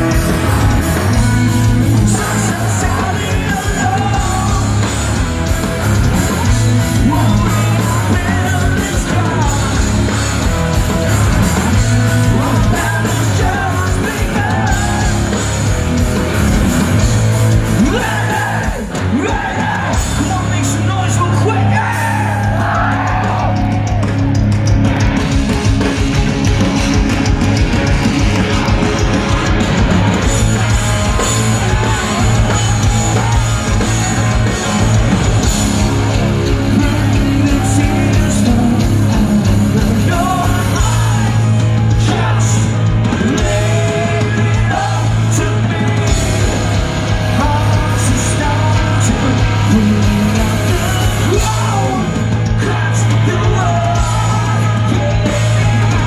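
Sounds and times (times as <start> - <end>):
bass guitar: 0.0 - 56.0
drums: 0.0 - 56.0
electric guitars: 0.0 - 56.0
man singing into microphone: 2.0 - 4.8, 7.0 - 9.9, 12.2 - 15.2, 36.6 - 46.3, 47.4 - 56.0.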